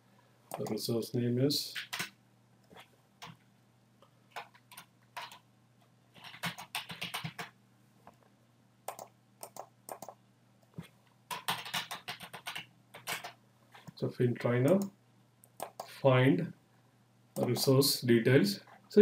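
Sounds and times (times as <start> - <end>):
keyboard typing: 1.8 - 2.1, 4.3 - 5.4, 6.2 - 7.5, 8.9 - 10.2, 11.3 - 13.4, 14.7 - 15.9.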